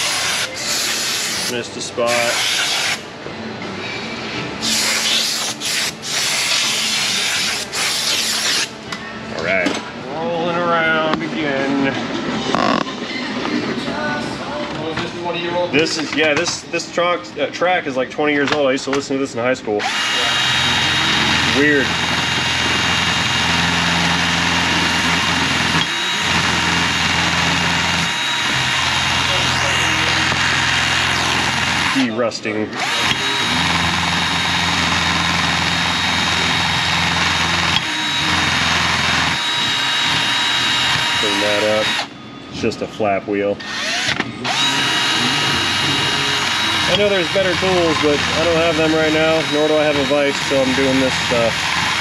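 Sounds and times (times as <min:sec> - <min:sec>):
motor hum: 0:19.8 - 0:32.1, 0:32.7 - 0:42.1, 0:43.6 - 0:52.0.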